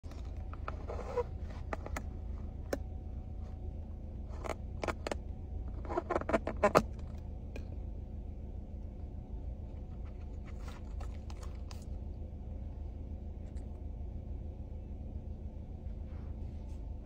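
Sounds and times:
steady low hum: 0:00.0 - 0:17.0
straw squeaking in plastic lid: 0:00.2 - 0:02.0, 0:05.8 - 0:06.9.

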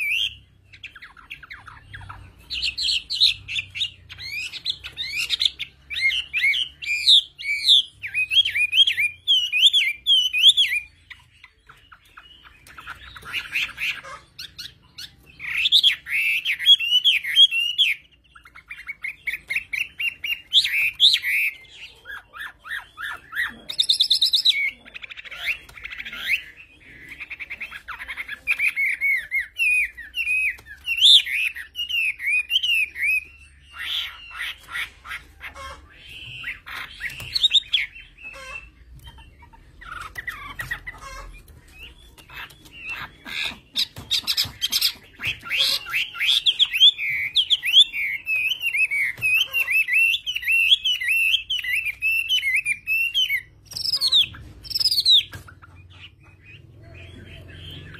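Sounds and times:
bird singing whistled trills: 0:00.0 - 0:24.8
bird chattering harshly: 0:00.0 - 0:57.9.

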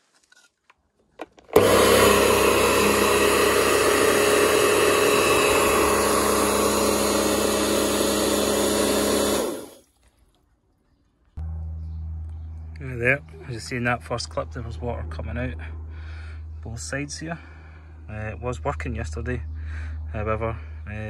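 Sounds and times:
pressure washer motor humming: 0:01.5 - 0:09.8.

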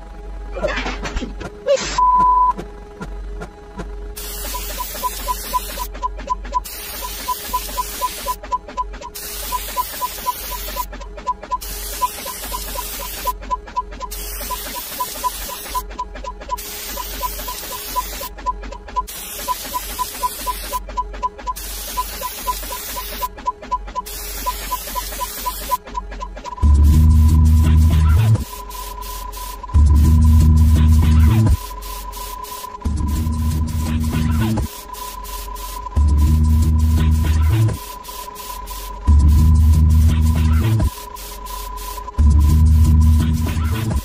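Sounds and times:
rapid short electronic beeps: 0:04.5 - 0:44.0
low hum: 0:25.9 - 0:38.0, 0:39.0 - 0:44.0.

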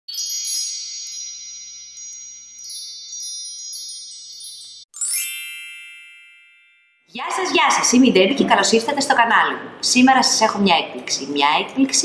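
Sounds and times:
tinkling wind chimes: 0:00.1 - 0:07.2.

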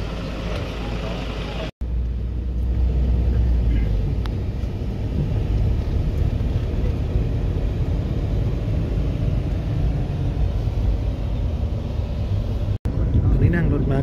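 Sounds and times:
van engine and road rumble: 0:00.0 - 0:14.0.

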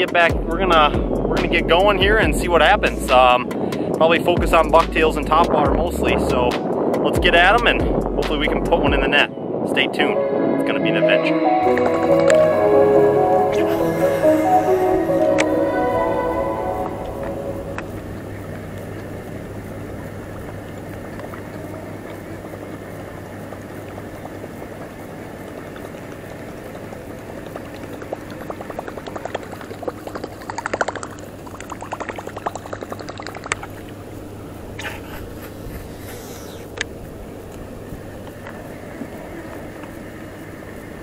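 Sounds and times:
steady low hum: 0:11.6 - 0:41.0
fishing lure gurgling across water: 0:13.4 - 0:36.9.

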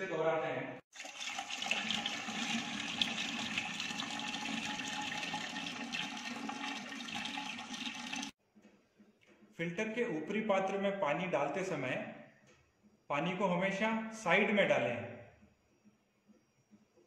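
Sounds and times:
water rushing into steel container: 0:00.9 - 0:08.3.

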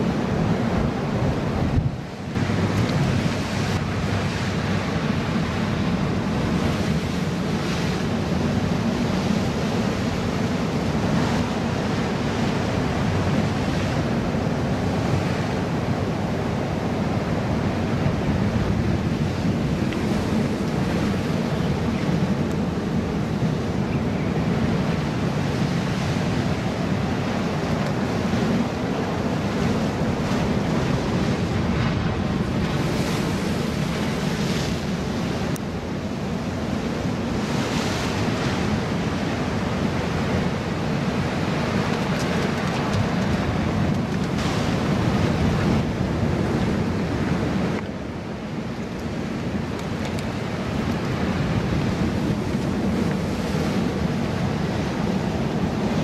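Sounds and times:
wind buffeting microphone: 0:00.0 - 0:56.0
surf breaking on rocks: 0:25.6 - 0:35.6.

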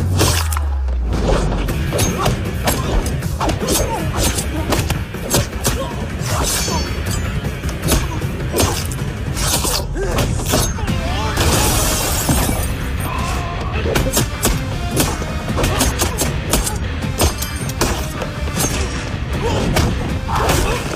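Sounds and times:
dramatic background music: 0:00.0 - 0:20.9.

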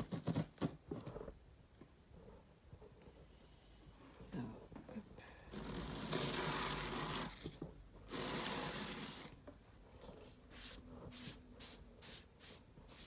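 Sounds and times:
rubbing and rustling: 0:00.0 - 0:01.4, 0:05.5 - 0:13.0.

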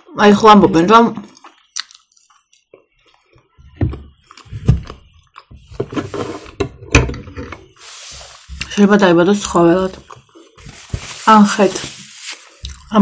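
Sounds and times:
chewing flatbread: 0:01.2 - 0:05.7.

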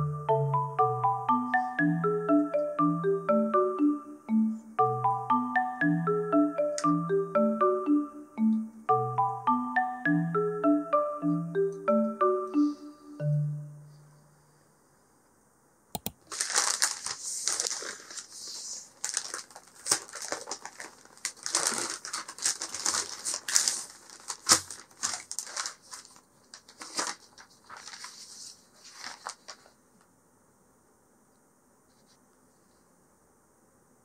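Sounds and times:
paper bag crinkling: 0:16.2 - 0:29.8.

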